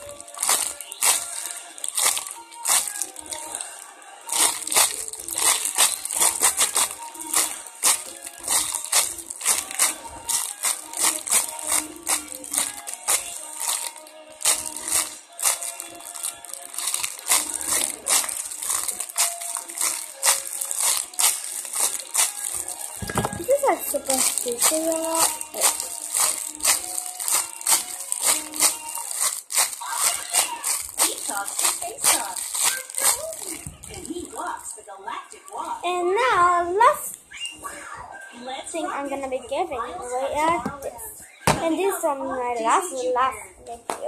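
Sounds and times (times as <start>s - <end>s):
plastic bag crinkling: 0.0s - 34.6s.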